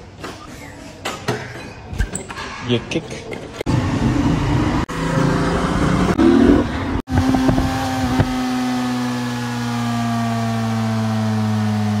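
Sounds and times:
motorcycle engine running: 0:07.1 - 0:12.0.

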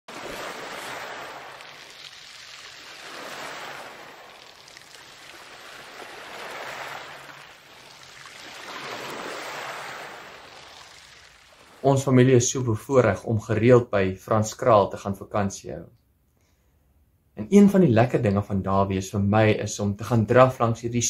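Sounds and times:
surf washing over pebbles: 0:00.1 - 0:12.3.

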